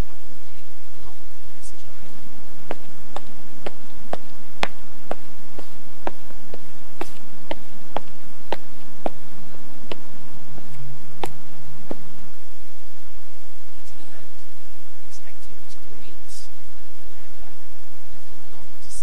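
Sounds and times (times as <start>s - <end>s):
loud static hiss: 0.0s - 19.0s.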